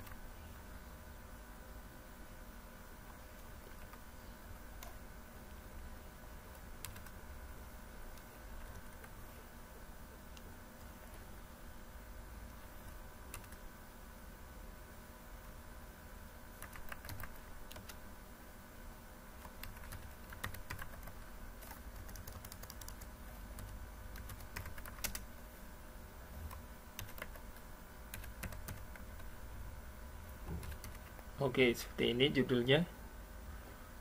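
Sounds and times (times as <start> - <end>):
steady low hum: 0.0 - 34.0
keyboard typing clicks: 6.5 - 7.2, 13.3 - 13.6, 16.6 - 18.0, 19.4 - 25.3, 26.4 - 29.3, 30.6 - 31.3.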